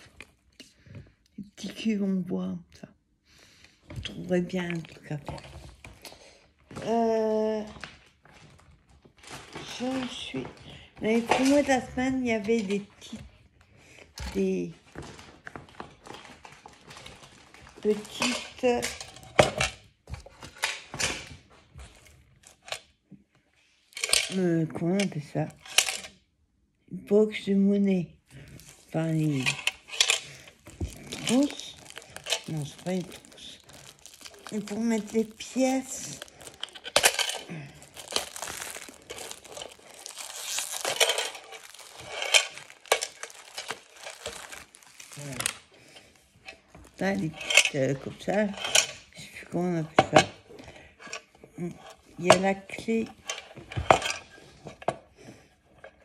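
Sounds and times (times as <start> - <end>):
plastic wrapping crinkling and tearing: 7.9 - 10.2, 28.4 - 47.8
small hard objects clattering: 28.5 - 46.0.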